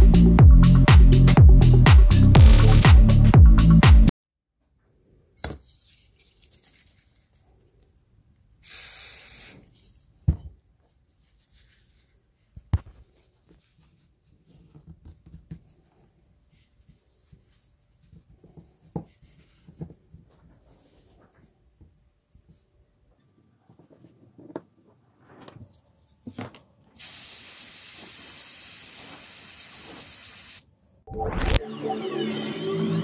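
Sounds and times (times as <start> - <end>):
electronic dance music: 0.0 - 4.1, 31.1 - 33.0
spray hissing: 8.6 - 9.6, 27.0 - 30.6.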